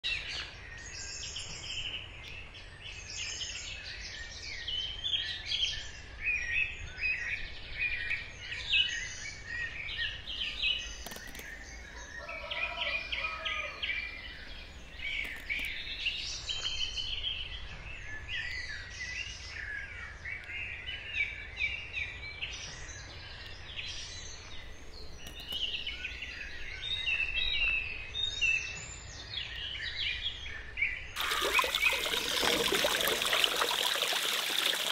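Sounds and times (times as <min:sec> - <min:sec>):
birds chirping and singing: 0:07.9 - 0:18.8.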